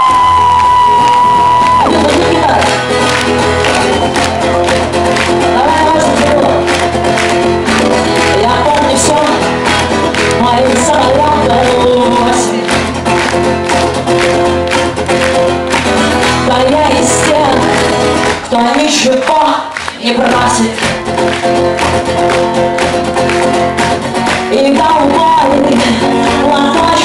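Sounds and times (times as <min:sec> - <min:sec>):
woman singing: 0:00.0 - 0:02.8, 0:05.4 - 0:06.7, 0:08.2 - 0:09.5, 0:10.3 - 0:12.9, 0:16.2 - 0:21.0, 0:24.4 - 0:27.0
band playing: 0:00.0 - 0:18.7, 0:20.4 - 0:27.0
strummed acoustic guitar: 0:01.7 - 0:19.2, 0:20.2 - 0:27.0.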